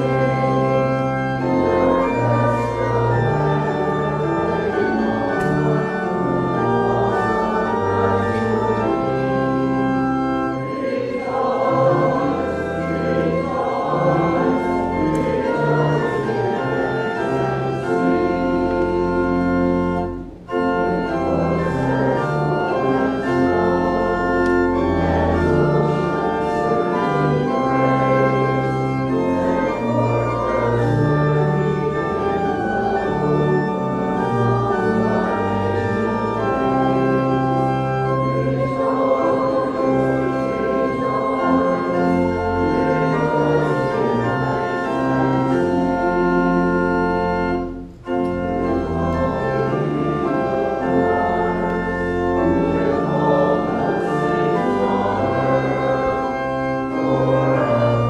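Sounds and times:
church organ playing a hymn: 0.0 - 58.0
congregation singing: 0.0 - 58.0.

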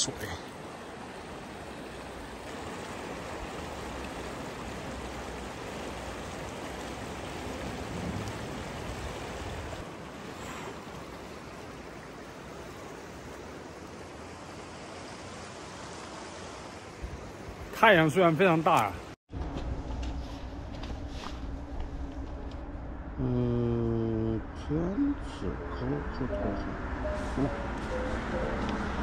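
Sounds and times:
mountain stream rushing: 0.0 - 19.2, 27.0 - 29.0.

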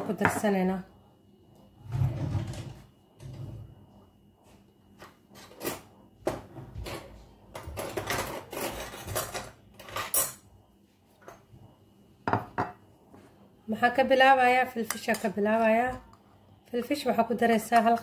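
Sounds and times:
utensils scraping and clattering: 5.3 - 5.9, 6.9 - 10.4.

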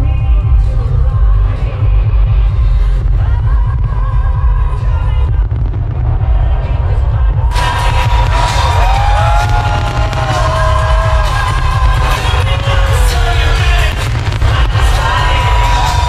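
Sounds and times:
heavy low rumble: 0.0 - 16.0
loud music with gliding melody: 0.0 - 16.0
fireworks bangs: 3.7 - 16.0.

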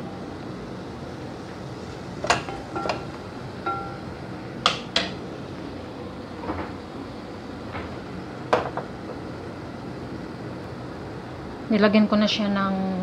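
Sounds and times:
kitchen utensils knocking and clicking: 2.2 - 3.1, 3.7 - 4.0, 4.7 - 5.2.

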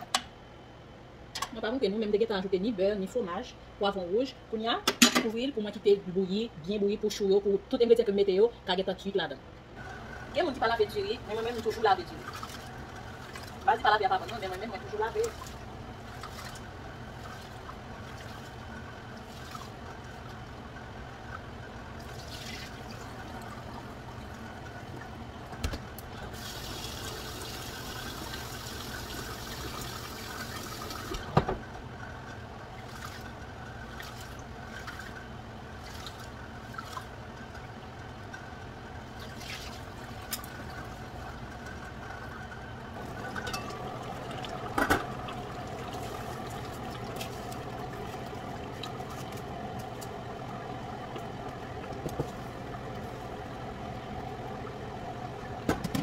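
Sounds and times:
water pouring: 11.3 - 20.6, 21.9 - 25.1, 26.3 - 31.2, 32.8 - 37.8, 39.1 - 50.2
cookware clattering: 43.3 - 43.9.

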